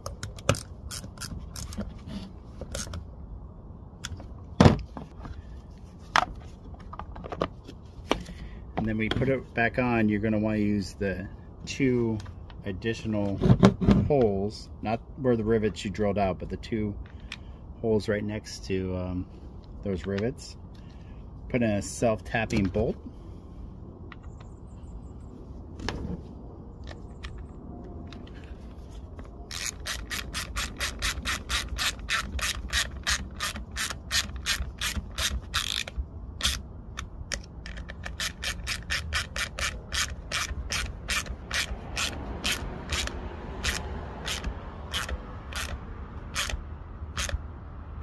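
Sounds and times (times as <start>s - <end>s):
hand ratchet clicking: 0.0s - 1.8s, 29.5s - 47.4s.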